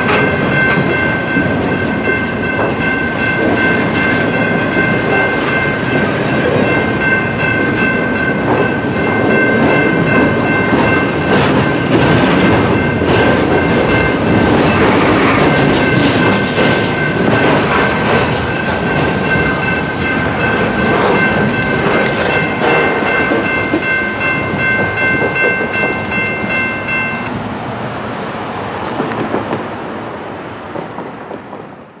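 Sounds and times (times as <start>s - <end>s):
train wheels on rails: 0.0s - 32.0s
high ringing tone: 17.0s - 27.3s.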